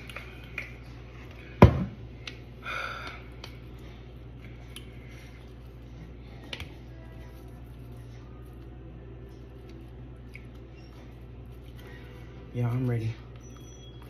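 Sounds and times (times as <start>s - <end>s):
plastic bottle thump on countertop: 1.6s - 2.0s.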